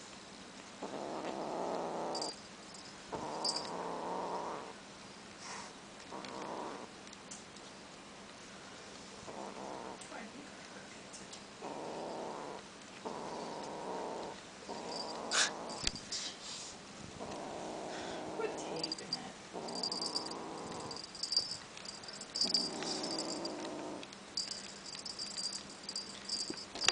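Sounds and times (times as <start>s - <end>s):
kitten growling: 0.8s - 2.4s, 3.1s - 4.8s, 6.1s - 6.9s, 9.3s - 10.1s, 11.6s - 16.0s, 17.2s - 26.9s
small bell jingling: 2.1s - 3.8s, 14.8s - 16.1s, 18.7s - 23.6s, 24.4s - 26.9s.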